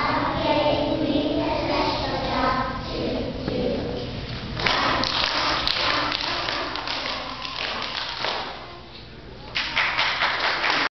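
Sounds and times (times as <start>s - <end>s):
crowd applauding: 9.5s - 10.9s.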